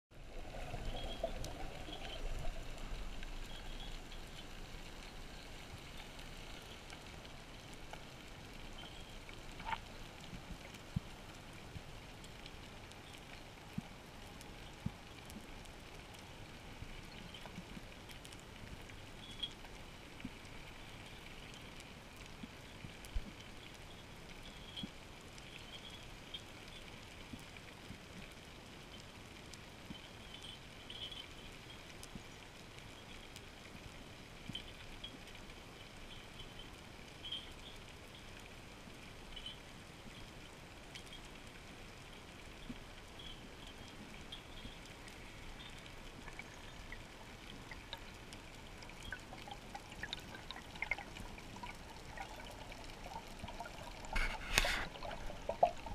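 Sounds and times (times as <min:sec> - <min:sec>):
faint crackling clicks: 0:00.2 - 0:55.9
underwater hiss: 0:54.0 - 0:55.9.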